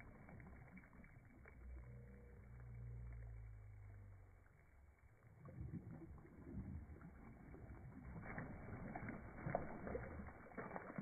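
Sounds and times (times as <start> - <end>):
water splashing by hands: 5.3 - 11.0.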